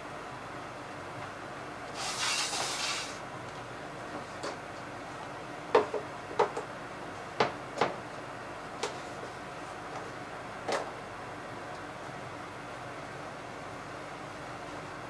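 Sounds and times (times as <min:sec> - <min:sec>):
brief hiss: 0:01.9 - 0:03.2.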